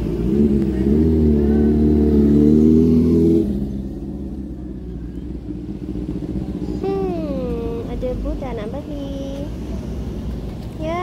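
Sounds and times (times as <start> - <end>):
low traffic rumble: 0.0 - 11.0
vehicle engine running: 0.0 - 11.0.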